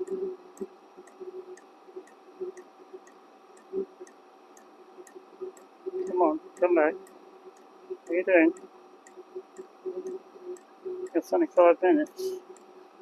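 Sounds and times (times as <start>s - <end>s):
heater low hum: 0.0s - 13.0s.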